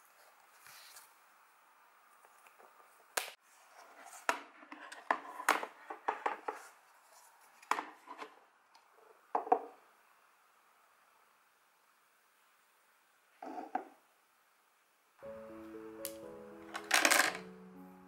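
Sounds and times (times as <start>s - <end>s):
faint steady hiss: 5.6s - 18.0s
art supplies clicking and tapping: 16.7s - 17.5s.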